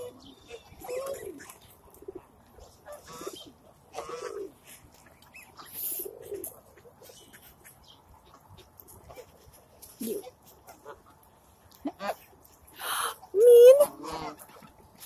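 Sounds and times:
pigeons cooing: 0.0 - 7.6, 9.0 - 10.4.

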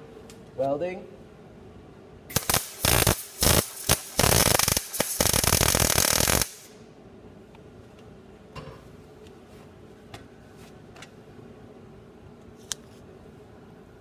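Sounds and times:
welder arc crackling: 2.3 - 6.8.

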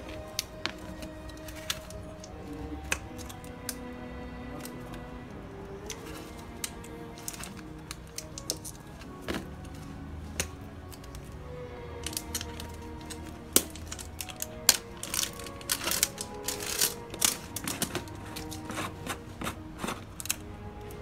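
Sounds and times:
soft background music: 0.0 - 21.0
plastic seal crinkling and tearing: 0.1 - 3.7, 12.0 - 20.4.

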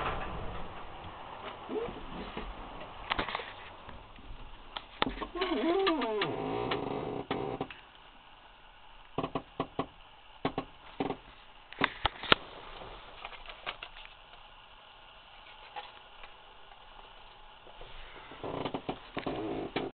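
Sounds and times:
sharp clicks and knocks: 0.0 - 7.9, 9.1 - 12.4, 18.5 - 19.9
low background noise: 0.0 - 19.9.

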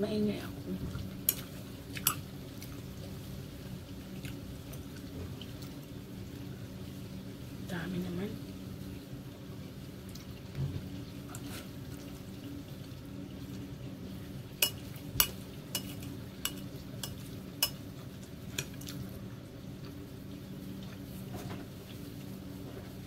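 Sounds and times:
fork clinking against bowl: 14.6 - 17.8.

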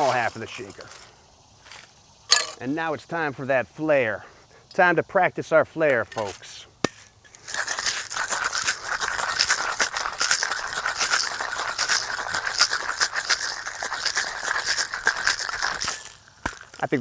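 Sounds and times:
ice rattling in cocktail shaker: 7.3 - 17.0.

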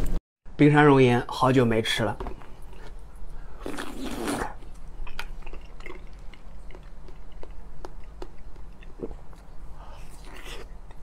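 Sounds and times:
chewing soft cake: 2.6 - 11.0.

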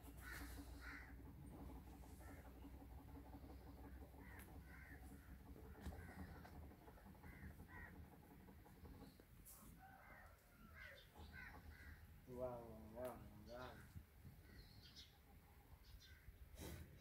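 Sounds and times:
low background rumble: 0.0 - 16.5
birds calling: 0.0 - 17.0.

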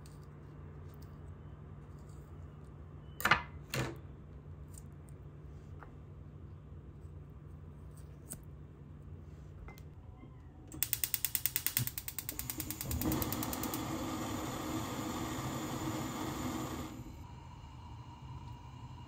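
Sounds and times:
gas flame hissing: 10.7 - 19.0
stove igniter clicking rapidly: 10.8 - 14.0.

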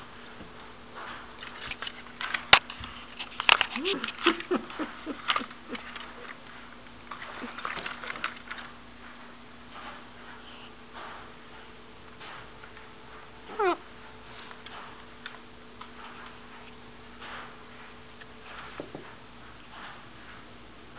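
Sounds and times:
puppy sniffing and snuffling: 1.0 - 8.6, 9.7 - 15.2
scratchy rustling: 1.0 - 8.6
puppy whining: 3.6 - 6.4, 13.4 - 13.9.

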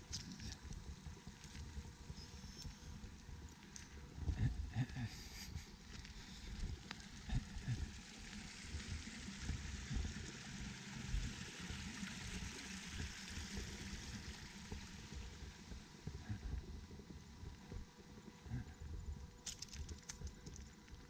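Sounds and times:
water trickling into a pond: 6.8 - 16.2, 19.3 - 21.0.

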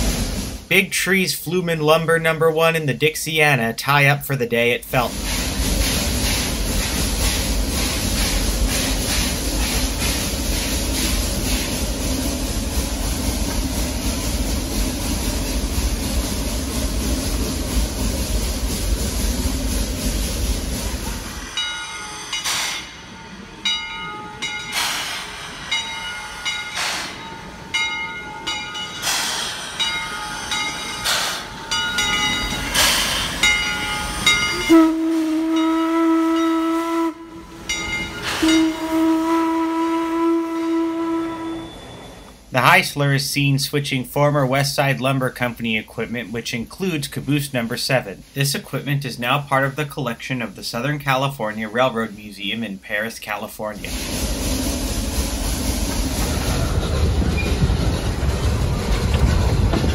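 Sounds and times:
steam locomotive exhaust beats: 0.0 - 59.9
steam whistle: 34.2 - 42.3.

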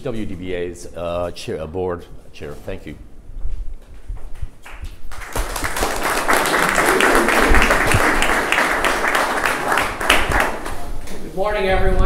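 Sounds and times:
audience applause: 5.1 - 10.9.

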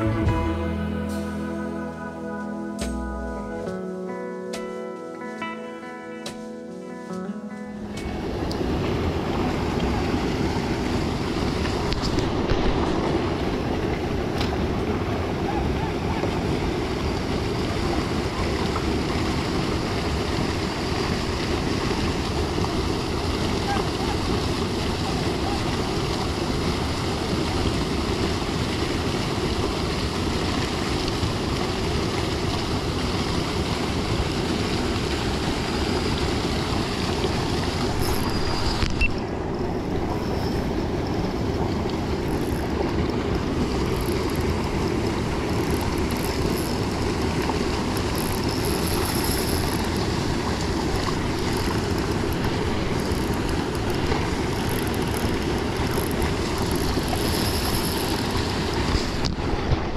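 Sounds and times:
river water lapping: 2.2 - 59.9
wind rumble on microphone: 8.2 - 59.9.

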